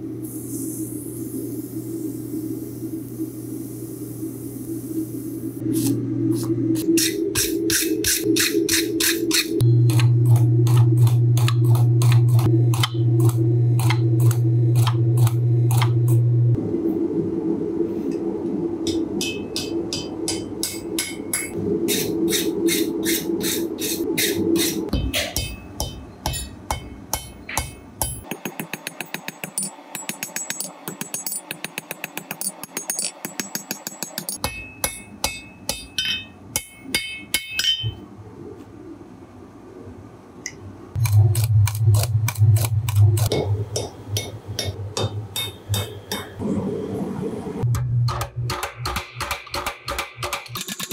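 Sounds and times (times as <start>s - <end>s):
hammer striking blade on anvil: 18.9s - 38.0s, 41.0s - 46.4s
anvil ringing: 34.4s - 38.0s.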